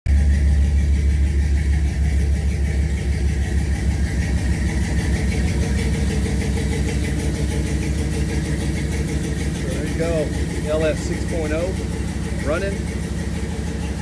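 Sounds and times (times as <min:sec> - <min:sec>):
car engine idling: 0:00.1 - 0:14.0.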